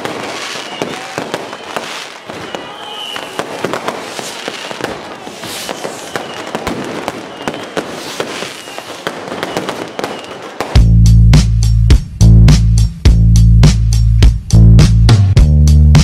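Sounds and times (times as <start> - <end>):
firework whistles: 0.0 - 10.8
fireworks bangs and crackling: 0.0 - 11.6.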